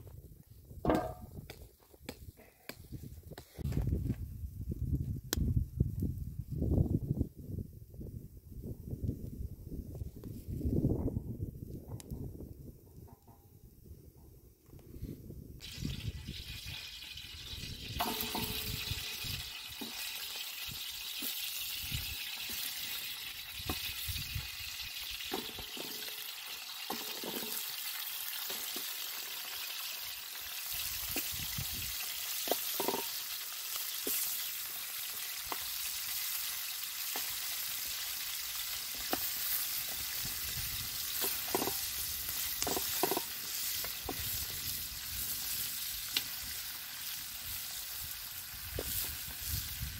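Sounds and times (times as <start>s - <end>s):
chicken sizzling in hot oil: 15.6s - 49.9s.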